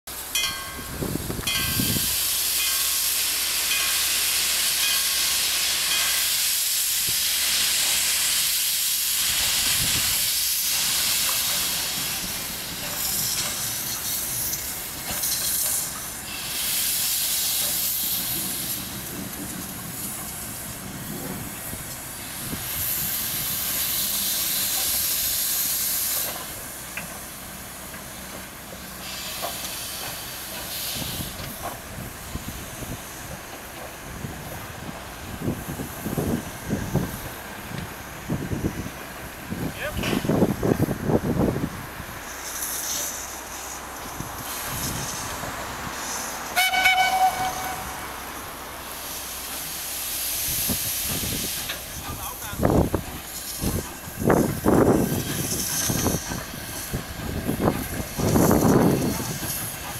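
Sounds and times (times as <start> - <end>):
steam locomotive hissing: 0.1 - 59.9.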